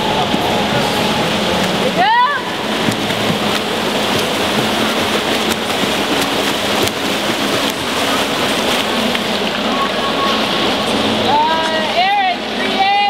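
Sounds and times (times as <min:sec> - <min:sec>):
swimmers splashing water: 0:00.0 - 0:13.0.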